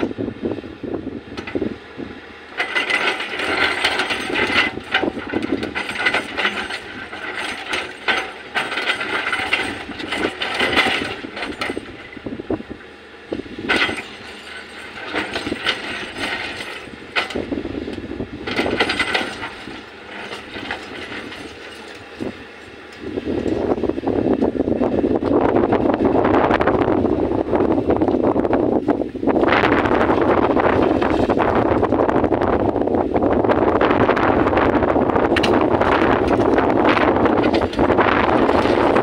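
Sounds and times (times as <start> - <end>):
excavator working: 0.0 - 39.0
bucket and stones clattering: 2.6 - 12.1, 13.7 - 17.5, 18.4 - 22.4, 29.7 - 31.9, 35.4 - 39.0.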